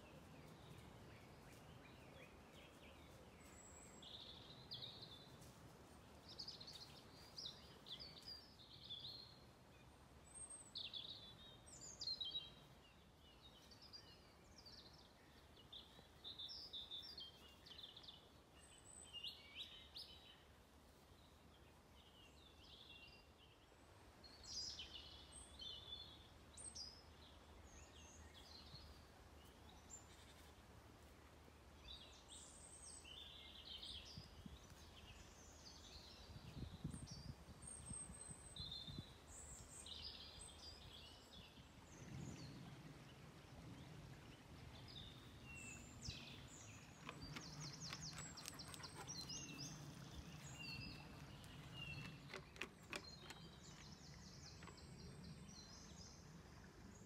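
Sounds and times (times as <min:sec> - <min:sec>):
small birds chirping: 0:31.8 - 0:57.0.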